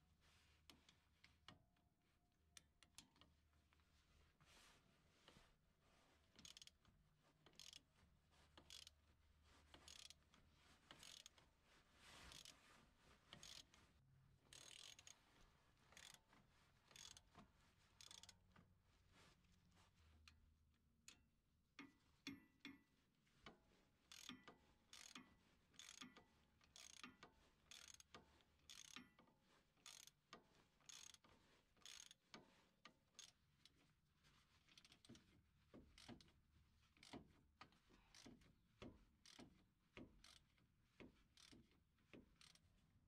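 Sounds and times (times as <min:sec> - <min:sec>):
ratchet wrench clicking: 0:06.4 - 0:06.7, 0:08.7 - 0:08.9, 0:09.9 - 0:10.2, 0:11.0 - 0:11.3, 0:13.4 - 0:13.6, 0:14.5 - 0:15.2, 0:16.0 - 0:16.2, 0:17.0 - 0:17.2, 0:18.0 - 0:18.4, 0:24.1 - 0:28.1, 0:28.7 - 0:29.2, 0:29.8 - 0:30.2, 0:30.8 - 0:32.2, 0:39.2 - 0:39.5, 0:40.2 - 0:40.5, 0:41.4 - 0:41.7.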